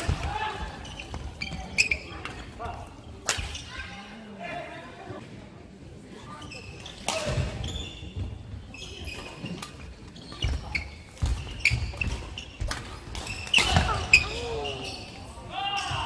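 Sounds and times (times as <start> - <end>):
shoes squeaking: 0.8 - 2.4, 7.6 - 16.0.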